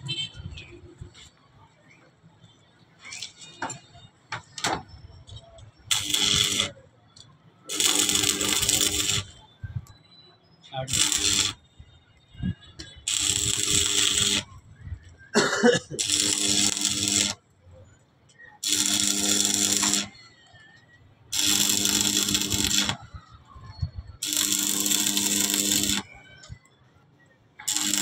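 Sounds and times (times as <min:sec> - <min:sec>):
arc welder crackling: 0:05.9 - 0:06.8, 0:07.7 - 0:09.4, 0:10.8 - 0:11.6, 0:13.0 - 0:15.2, 0:16.0 - 0:17.4, 0:18.6 - 0:20.2, 0:21.3 - 0:23.2, 0:24.2 - 0:26.6, 0:27.6 - 0:28.0.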